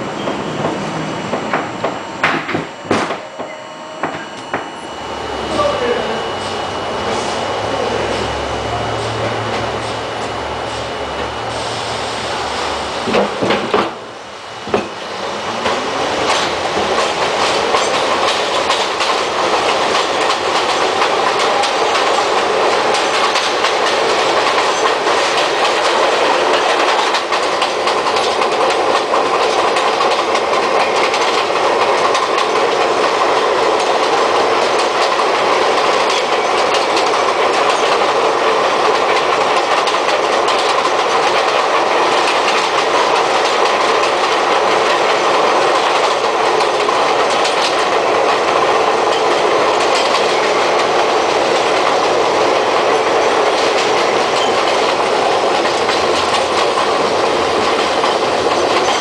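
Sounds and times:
train wheels clacking over rail joints: 13.0 - 14.0, 14.6 - 59.0.

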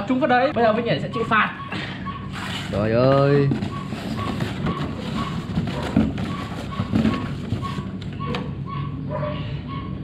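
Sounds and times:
hands rummaging in cardboard box: 2.4 - 7.9.

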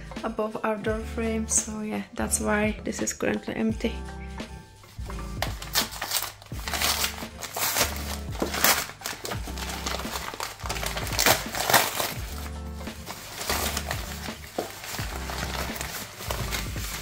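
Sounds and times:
background music: 0.0 - 17.0
mailer bag crinkling: 5.0 - 17.0.

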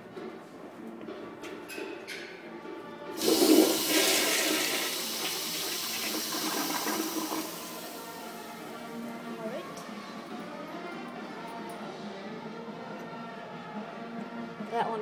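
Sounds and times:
toilet flushing: 3.2 - 8.9.

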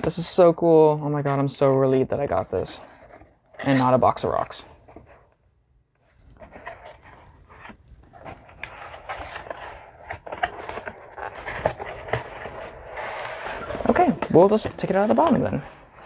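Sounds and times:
cardboard box scraping and rustling: 6.4 - 16.0.

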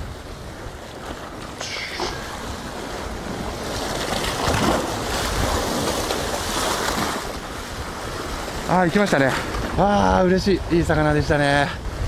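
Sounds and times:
sea waves washing against rocks: 0.0 - 12.0
wind rumbling on microphone: 0.0 - 12.0.

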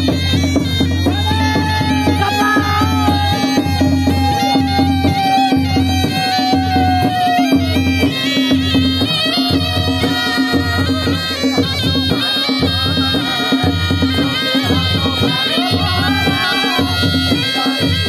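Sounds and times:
drum beating steady rhythm: 0.0 - 18.0
shawms playing reedy melody: 0.0 - 18.0.

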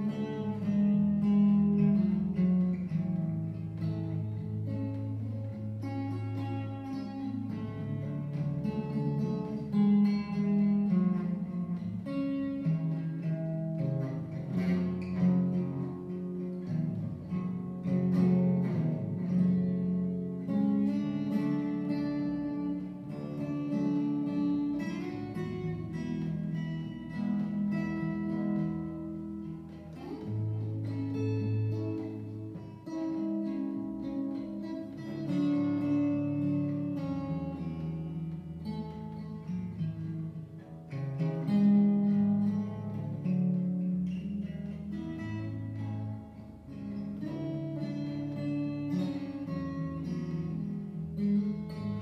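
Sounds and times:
acoustic guitar playing: 0.0 - 52.0.

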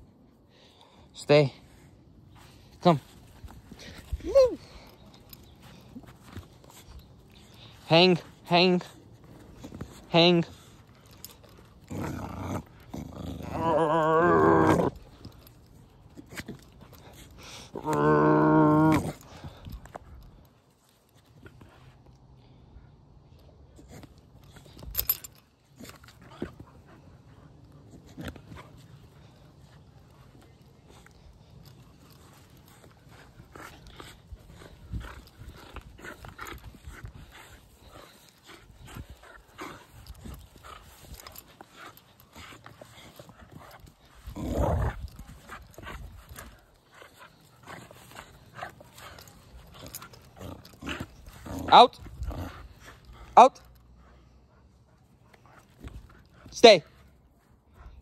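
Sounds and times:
tugging and rustling: 0.0 - 58.0
puppy growling: 11.1 - 15.4, 44.2 - 46.7, 47.6 - 52.8.

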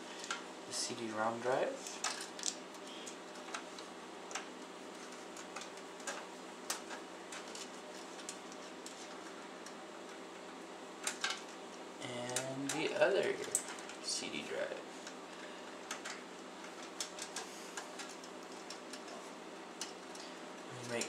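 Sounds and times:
faint steady hum: 0.0 - 21.0
connectors clicking into drive: 12.3 - 14.0, 15.8 - 19.2.

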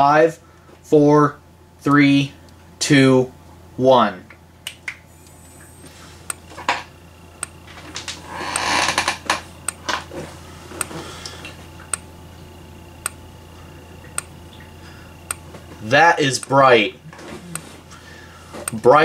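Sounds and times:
low electrical hum: 0.0 - 19.0
strobe ticking: 4.3 - 10.1, 10.7 - 17.7, 18.6 - 19.0.

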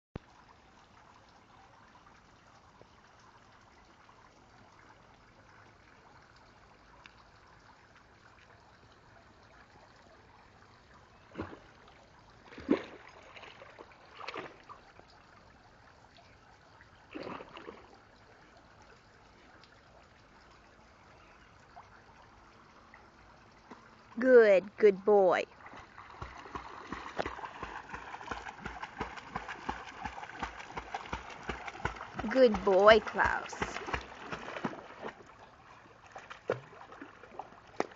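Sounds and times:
water trickling: 0.2 - 37.9
dog splashing in water: 12.5 - 14.7, 25.6 - 35.4, 36.0 - 37.9.

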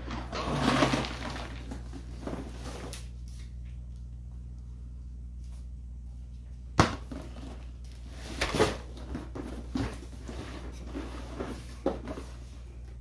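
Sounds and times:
cardboard rustling and scraping: 0.0 - 3.4, 7.1 - 12.9
low steady hum: 0.0 - 13.0.

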